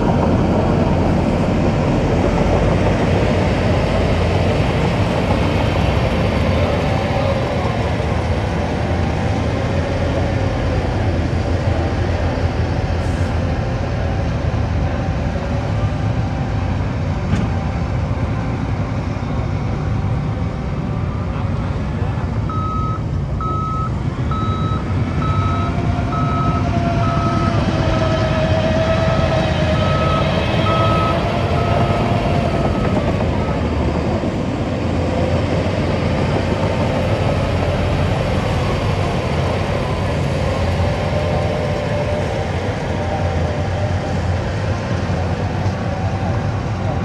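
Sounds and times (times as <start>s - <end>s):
bulldozer diesel engines under load: 0.0s - 47.0s
reversing alarm beeping: 22.5s - 27.8s, 29.7s - 33.8s.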